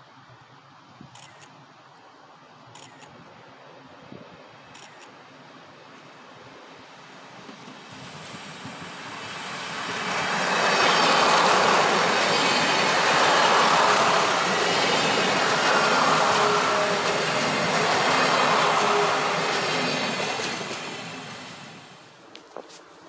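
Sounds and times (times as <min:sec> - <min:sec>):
passenger train passing: 0:06.2 - 0:22.4.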